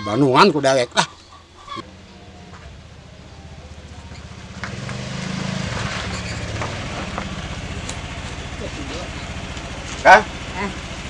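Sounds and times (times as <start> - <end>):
scooter engine running: 2.2 - 11.0.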